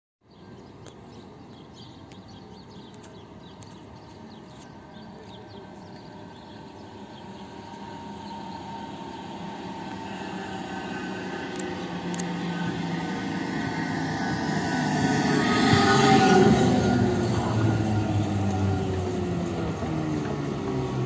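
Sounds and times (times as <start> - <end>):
tram running noise: 0.7 - 21.0
tram whine: 4.2 - 21.0.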